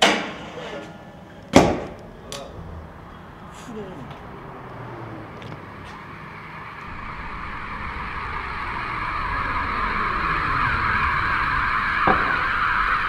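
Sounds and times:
scooter wheels rolling on pavement: 0.4 - 13.0.

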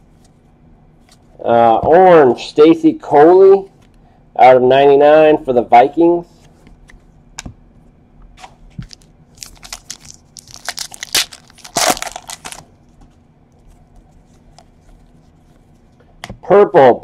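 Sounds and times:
foil wrapper crinkling and tearing: 8.9 - 12.7.

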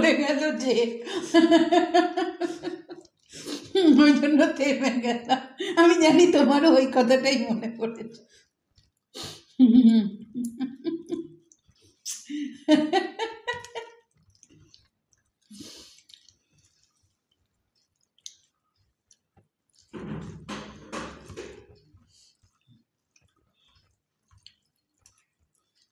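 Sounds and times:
people eating by hand: 2.4 - 3.9, 8.2 - 12.1, 13.5 - 25.9
chewing: 2.8 - 3.7, 8.1 - 9.5, 11.2 - 12.2, 13.6 - 20.0, 21.7 - 25.9
squish of rice being mixed: 8.1 - 9.4, 13.8 - 20.0, 21.8 - 25.9.

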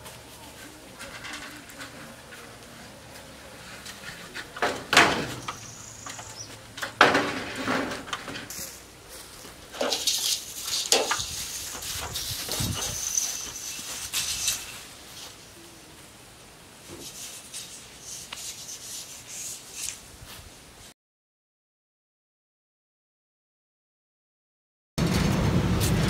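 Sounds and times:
metal sheet scraping and rattling: 0.9 - 8.9, 9.6 - 15.3, 25.0 - 26.0
sharp knocks on metal panel: 6.8 - 8.5.

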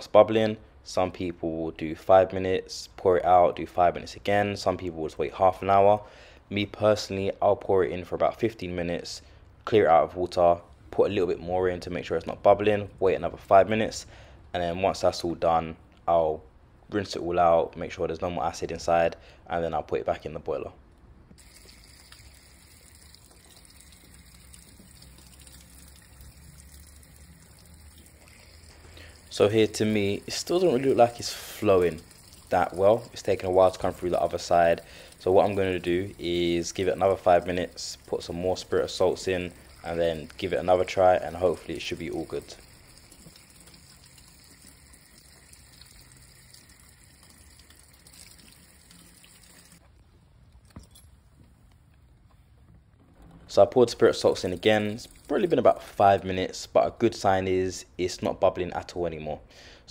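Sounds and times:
faint running water: 21.4 - 49.8, 53.2 - 57.2
water trickling onto drain grate: 21.4 - 49.8, 53.5 - 56.4.

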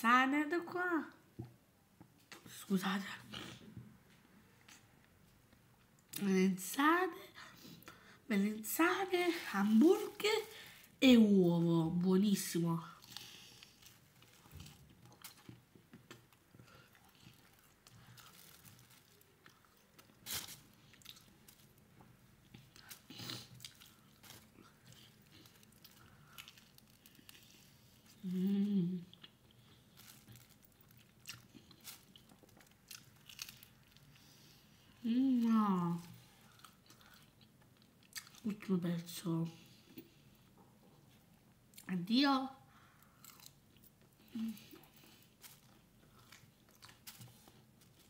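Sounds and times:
person chewing a sandwich: 13.0 - 35.0, 36.0 - 38.5, 42.8 - 48.0.

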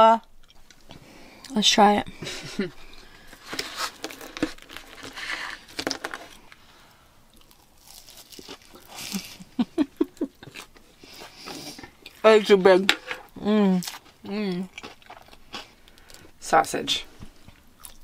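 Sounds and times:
chewing with soft crunching: 7.3 - 12.2, 13.8 - 16.4, 17.2 - 18.0.

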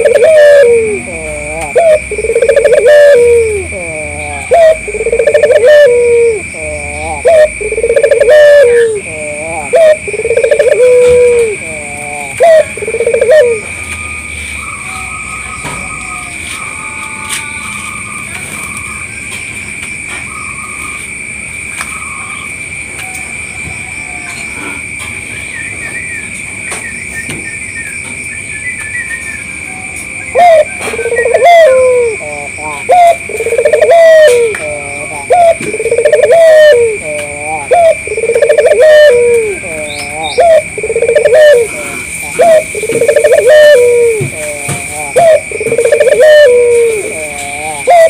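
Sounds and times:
dove cooing: 0.0 - 13.8, 30.2 - 48.0
high-pitched insect drone: 0.0 - 48.0.

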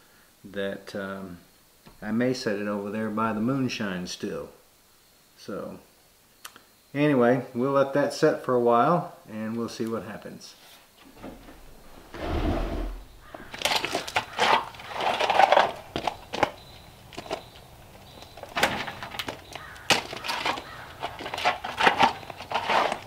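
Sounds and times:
shovel digging into gravel: 20.0 - 23.0.

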